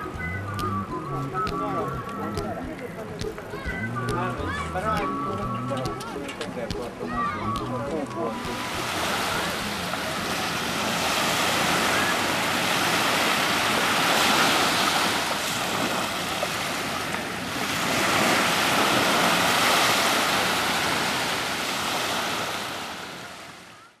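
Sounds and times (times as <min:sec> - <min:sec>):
waves washing up pebble beach: 0:08.4 - 0:23.2.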